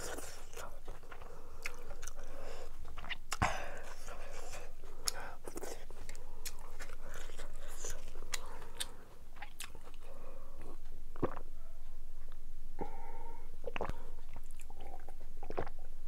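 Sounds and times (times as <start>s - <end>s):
chewing with wet clicks: 0.5s - 2.3s, 5.0s - 11.4s, 13.7s - 15.8s
sips and swallows: 13.6s - 15.8s.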